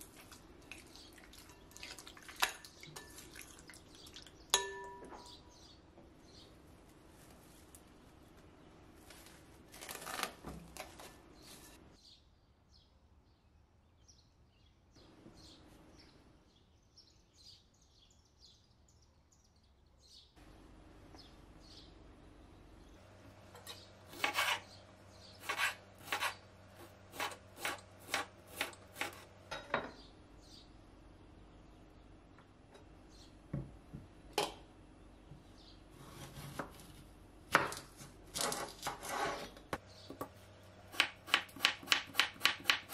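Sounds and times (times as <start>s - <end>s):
knife cutting on cutting board: 24.1s - 24.7s, 25.4s - 26.4s.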